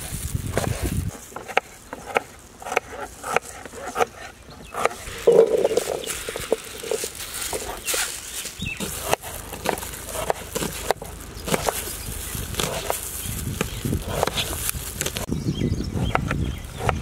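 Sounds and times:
knife chopping on plastic board: 8.8 - 11.9, 13.6 - 15.3.

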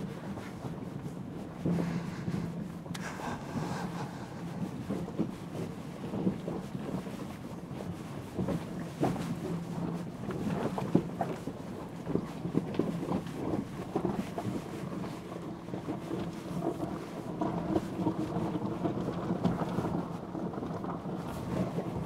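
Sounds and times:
low hum: 0.9 - 6.6.

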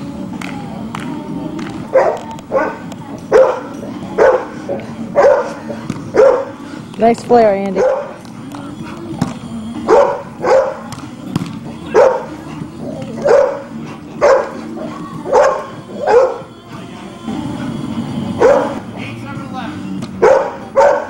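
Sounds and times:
dog barking: 1.9 - 6.6, 7.8 - 8.2, 9.9 - 10.9, 11.9 - 12.3, 13.2 - 14.6, 15.3 - 16.5, 18.4 - 18.8, 20.2 - 21.0.

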